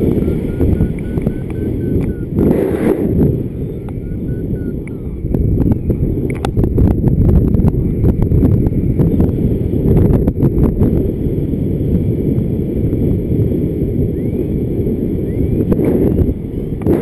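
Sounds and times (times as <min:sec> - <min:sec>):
wind rumble on microphone: 0:00.0 - 0:17.0
sharp clicks: 0:00.2 - 0:03.0, 0:03.8 - 0:06.6.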